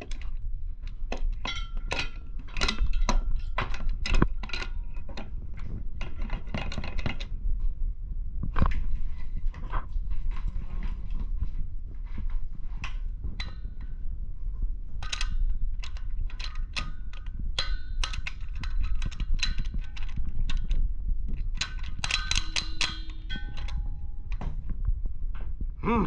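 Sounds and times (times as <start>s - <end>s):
low steady rumble: 0.0s - 26.0s
metal regulator clinking: 1.1s - 5.3s, 15.0s - 20.8s, 21.6s - 24.4s.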